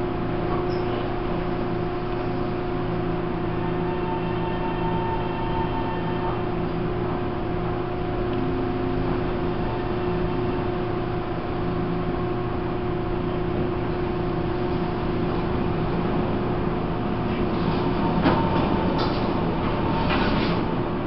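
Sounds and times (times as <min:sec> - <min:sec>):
train rumbling from inside carriage: 0:00.0 - 0:21.0.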